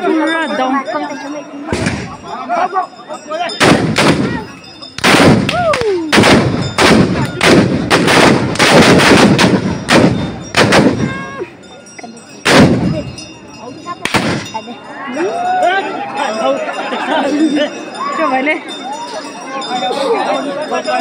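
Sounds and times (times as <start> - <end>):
black-powder gunshots: 3.6 - 4.4, 5.0 - 11.1, 12.4 - 13.0, 14.1 - 14.5
people shouting: 3.6 - 7.5, 10.6 - 11.6, 14.9 - 16.5.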